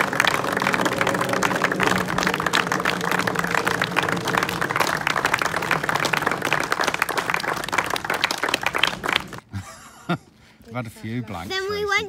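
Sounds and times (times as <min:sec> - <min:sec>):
low hum: 0:00.0 - 0:09.4
crowd applauding: 0:00.0 - 0:09.5.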